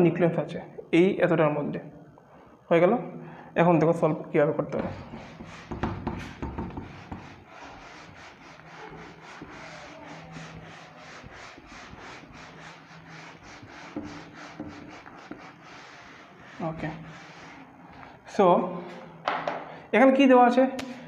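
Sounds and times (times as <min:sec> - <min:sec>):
duster rubbing whiteboard: 0:04.8 - 0:18.2.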